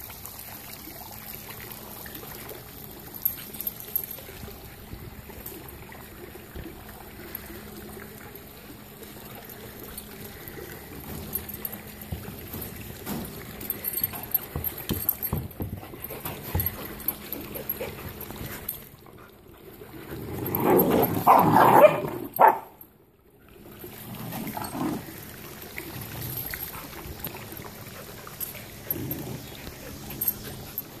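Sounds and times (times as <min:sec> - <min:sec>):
puppies scuffling: 0:09.4 - 0:19.0.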